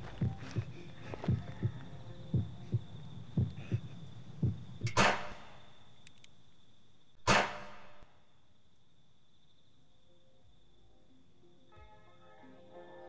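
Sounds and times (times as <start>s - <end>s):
heartbeat thumps: 0.0s - 5.4s
revolver shot: 7.3s - 8.0s.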